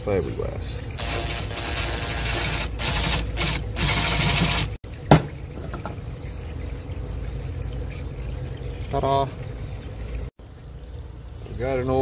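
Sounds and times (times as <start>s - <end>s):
cordless drill bursts: 1.0s - 4.8s.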